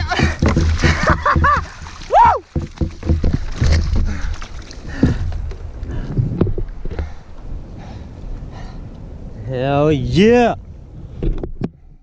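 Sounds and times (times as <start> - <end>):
wind buffeting microphone: 0.0 - 12.0
knocks on plastic kayak: 0.2 - 4.1.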